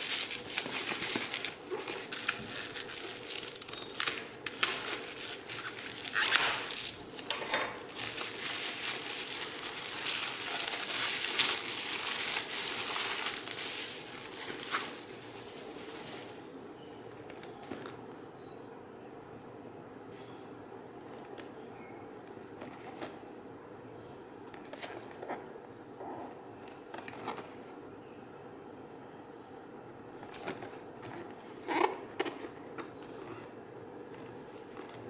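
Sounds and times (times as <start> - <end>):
bubble wrap crinkling: 0.0 - 16.4.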